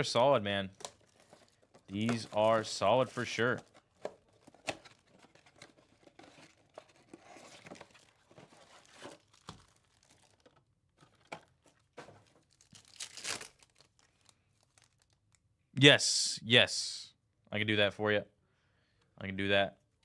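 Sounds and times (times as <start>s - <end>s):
wrapper crinkling: 0.8s - 15.4s.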